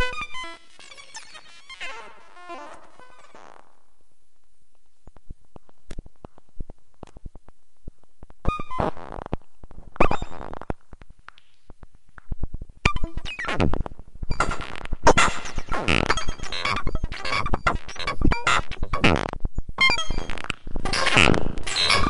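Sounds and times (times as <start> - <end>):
buzzing electronic tone: 14.3 - 22.0.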